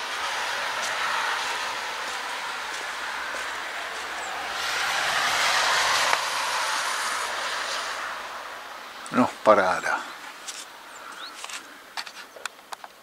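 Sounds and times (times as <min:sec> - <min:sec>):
traffic tyre hiss: 0:00.0 - 0:12.3.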